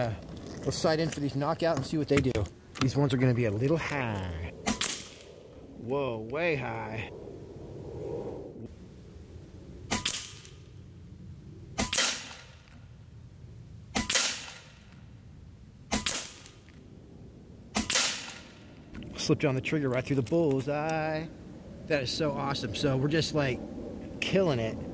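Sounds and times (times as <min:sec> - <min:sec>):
air rifle shots: 0:04.6 - 0:05.3, 0:09.9 - 0:10.6, 0:11.8 - 0:12.6, 0:13.9 - 0:14.9, 0:15.9 - 0:16.6, 0:17.7 - 0:18.7.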